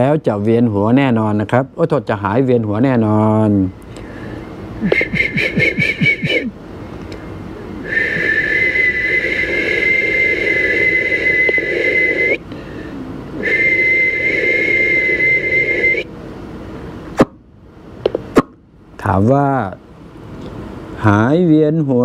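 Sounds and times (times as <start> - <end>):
man whistling high note: 4.8 - 6.5, 7.8 - 12.4, 13.4 - 16.1.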